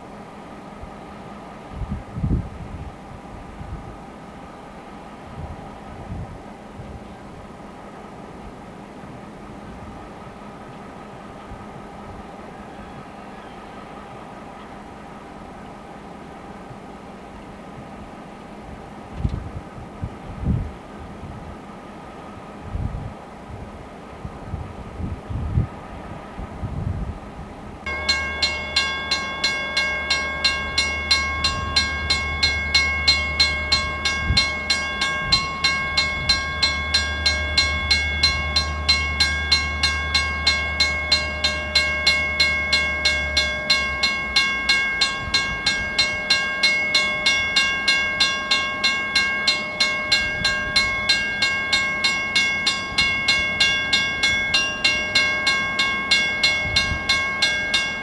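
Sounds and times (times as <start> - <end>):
diesel locomotives approaching: 0.0 - 58.0
low steady hum: 0.0 - 58.0
crossing warning bell ringing: 27.9 - 58.0.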